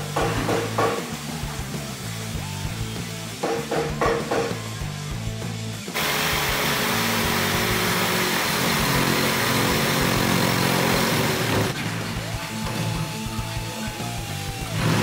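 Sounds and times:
jigsaw cutting wood: 6.0s - 13.2s, 14.6s - 15.0s.

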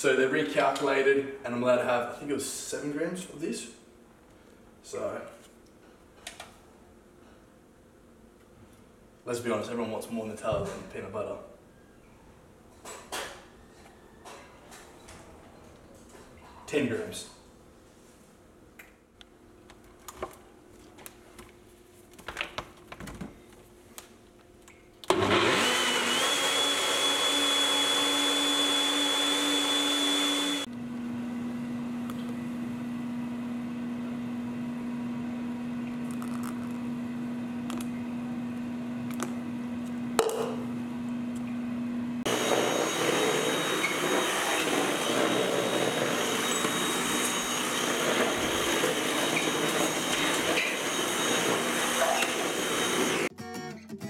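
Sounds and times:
stick vacuum cleaner running: 25.0s - 53.3s
blender whining: 25.1s - 38.8s, 42.3s - 53.3s.

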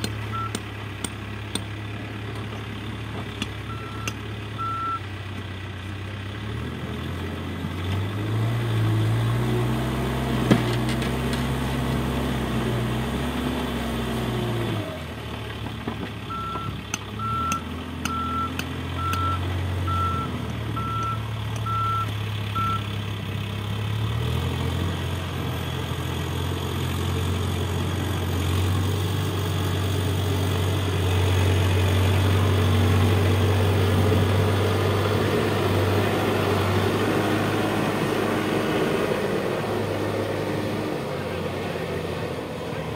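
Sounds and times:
diesel engine working under load: 0.0s - 42.9s
reversing alarm beeping: 0.3s - 0.6s, 3.7s - 5.0s, 16.3s - 22.9s.

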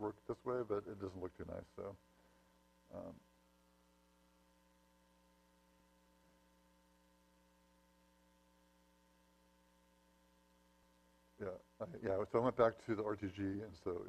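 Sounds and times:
faint electrical hum: 0.0s - 14.0s.

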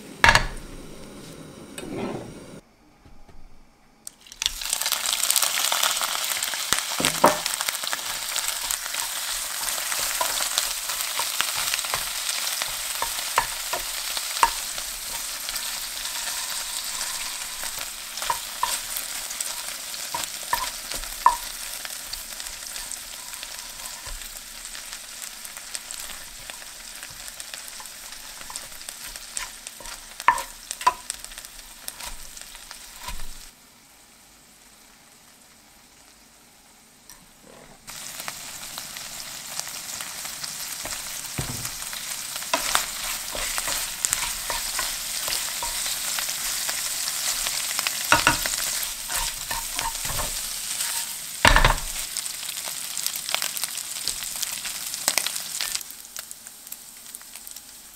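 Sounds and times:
shrimp sizzling in hot oil: 4.2s - 33.7s, 37.9s - 57.9s
wooden spoon knocking pan: 7.0s - 7.5s, 20.2s - 21.6s, 29.4s - 31.1s, 40.9s - 42.0s, 48.1s - 50.4s, 51.4s - 52.0s.

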